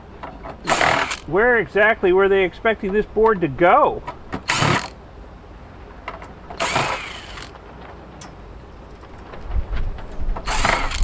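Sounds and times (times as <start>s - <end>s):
cordless driver whirring: 0.6s - 1.3s, 4.3s - 5.0s, 6.6s - 7.6s, 10.4s - 11.0s.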